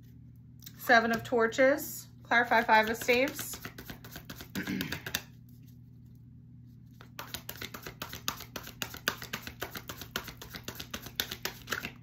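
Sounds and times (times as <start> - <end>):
faint low hum: 0.0 - 12.0
cards being shuffled: 2.4 - 5.8, 6.9 - 12.0.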